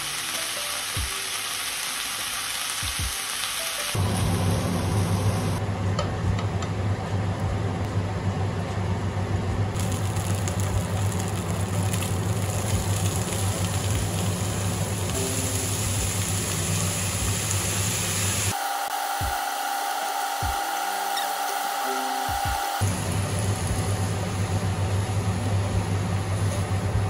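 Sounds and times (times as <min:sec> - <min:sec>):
vegetables sizzling in a frying pan: 0:00.0 - 0:05.6, 0:09.8 - 0:27.0
hiss with a steady tone: 0:12.4 - 0:24.2.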